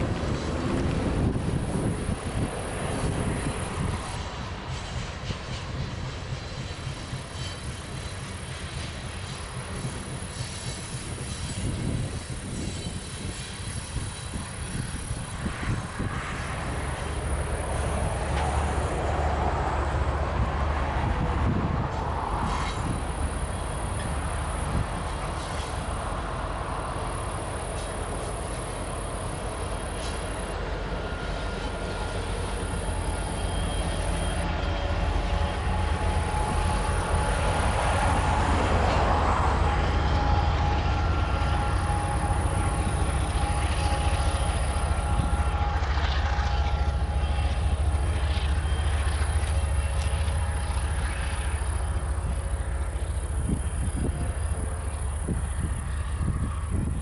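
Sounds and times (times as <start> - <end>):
steel wheels rumbling on rail: 0.0 - 57.0.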